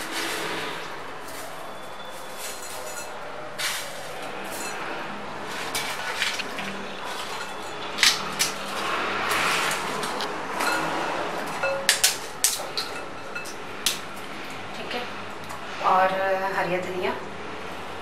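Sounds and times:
fried snacks rustling: 0.0s - 10.7s.

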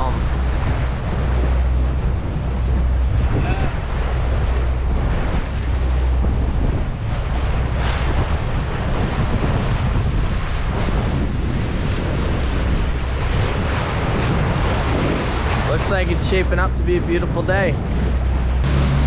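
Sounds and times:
diesel engine drone: 0.0s - 7.8s, 18.1s - 19.0s
water rushing along hull: 0.0s - 19.0s
wind buffeting microphone: 0.0s - 19.0s.

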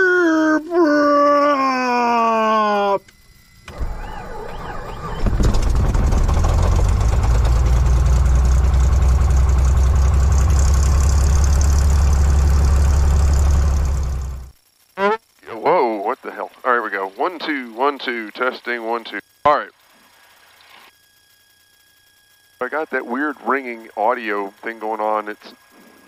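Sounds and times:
plane engine idling: 2.4s - 15.2s, 22.6s - 26.0s
starter cranking engine: 3.7s - 14.6s, 22.6s - 26.0s
pilot speaking: 15.0s - 19.7s, 22.6s - 25.6s.

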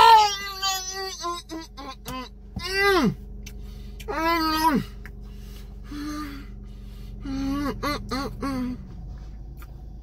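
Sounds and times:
steady low hum: 0.0s - 10.0s
man humming with enjoyment: 7.2s - 8.9s.

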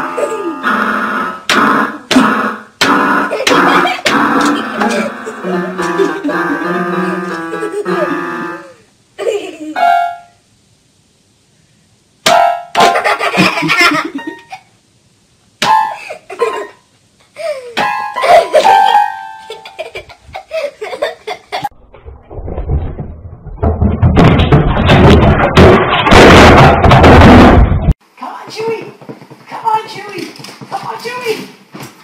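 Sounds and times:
noisy din with low rumble: 21.7s - 28.0s.

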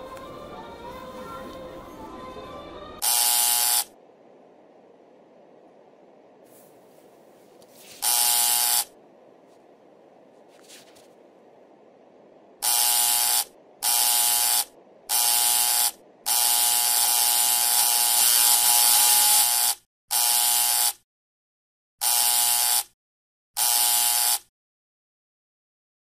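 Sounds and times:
electronic wrong-answer buzzer: 3.0s - 3.9s, 8.0s - 8.9s, 12.6s - 21.0s, 22.0s - 23.0s, 23.6s - 24.5s.

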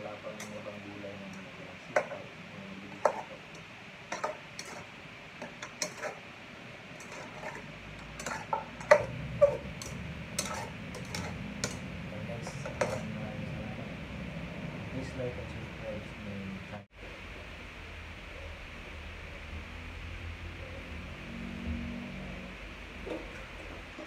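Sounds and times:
metal utensil clinking in pot: 4.1s - 6.2s, 7.0s - 11.8s, 12.5s - 13.1s
low steady rumble: 6.2s - 24.0s.

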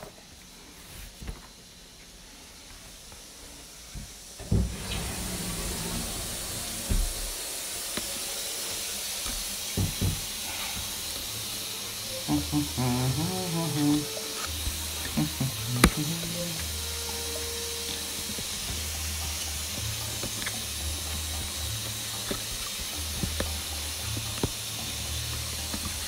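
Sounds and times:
shower water running: 0.0s - 26.0s
wavering voice-like sound: 12.1s - 14.4s, 15.1s - 16.8s.

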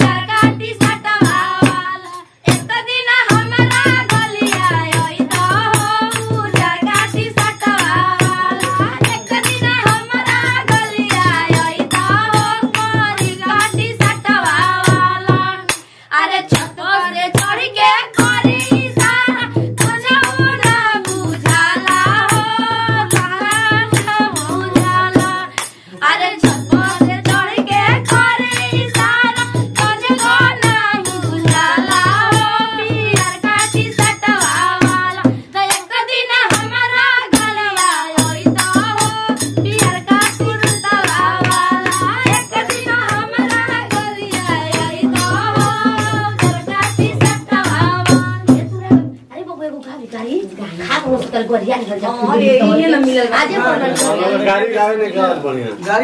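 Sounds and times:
fast percussion beat: 0.0s - 49.3s
women singing together: 0.0s - 49.4s, 50.5s - 54.6s
hand claps: 3.8s - 6.7s, 12.3s - 13.0s, 20.2s - 24.2s, 25.5s - 25.8s, 28.1s - 29.2s, 38.6s - 47.4s.

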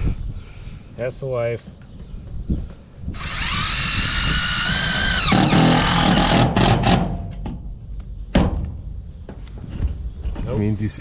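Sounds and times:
cordless drill driving screw: 3.2s - 7.0s.

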